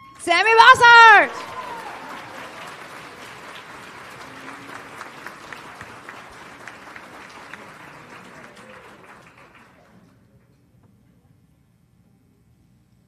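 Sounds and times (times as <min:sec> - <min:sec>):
audience applauding: 0:00.2 - 0:10.2.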